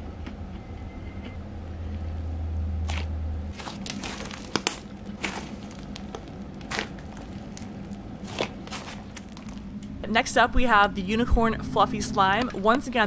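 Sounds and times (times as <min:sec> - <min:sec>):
low steady hum: 0:00.0 - 0:13.0
hands squishing slime: 0:02.9 - 0:09.7.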